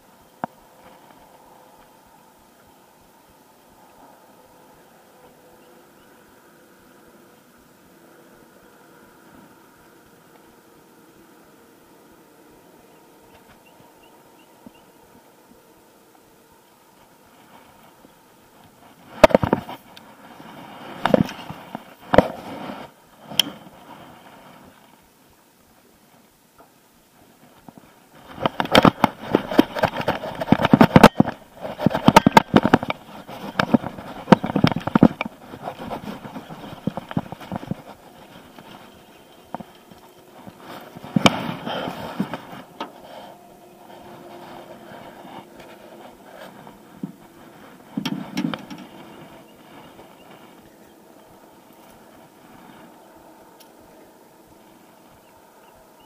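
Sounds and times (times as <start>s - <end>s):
fishing rod handling rustling: 27.6s - 53.8s.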